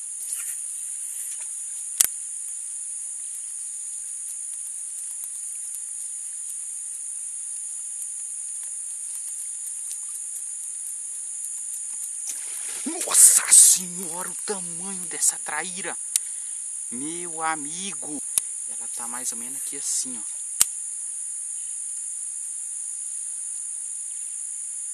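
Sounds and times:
high-pitched insect chorus: 0:00.0 - 0:24.9
sharp click: 0:02.0 - 0:02.2, 0:20.6 - 0:20.8.

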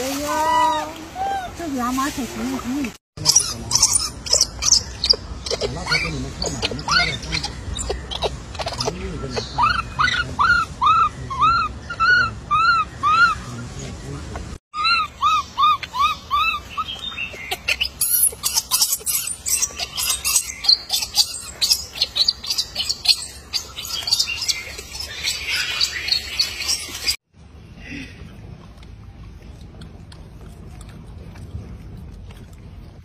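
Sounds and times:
infant monkey whimpering cries: 0:03.2 - 0:13.5, 0:14.8 - 0:25.6.

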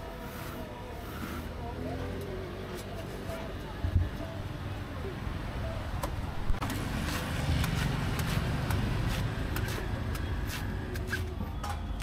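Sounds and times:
street traffic rumble: 0:00.0 - 0:12.0
knife cutting coconut husk: 0:06.6 - 0:11.4.

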